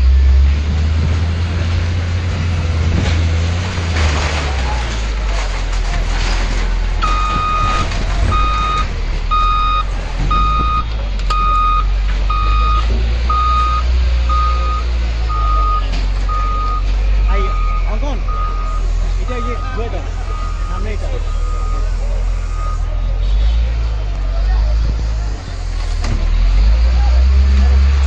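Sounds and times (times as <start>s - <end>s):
diesel engine under load: 0.0s - 28.0s
reversing alarm beeps: 7.0s - 22.9s.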